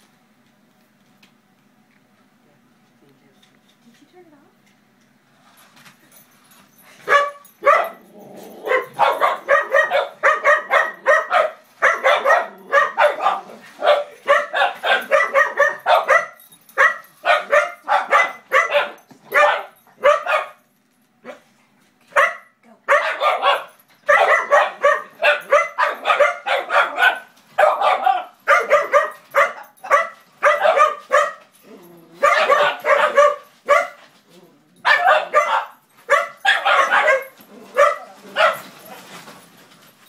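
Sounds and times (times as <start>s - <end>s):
puppies barking excitedly: 7.0s - 20.6s, 22.1s - 39.4s.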